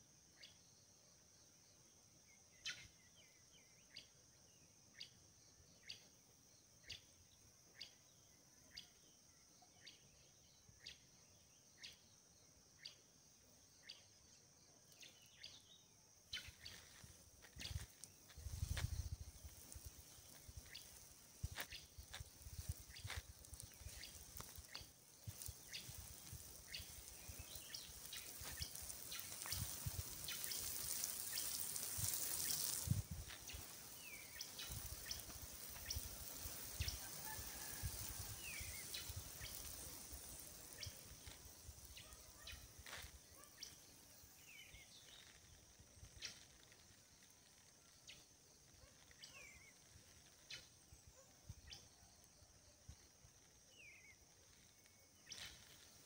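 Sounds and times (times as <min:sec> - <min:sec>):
water spraying onto soil: 0:16.3 - 0:56.0.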